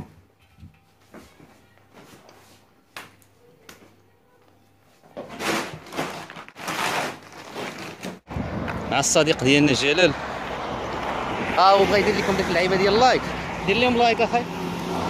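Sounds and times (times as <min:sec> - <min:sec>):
rustling and shuffling: 0:00.0 - 0:08.2.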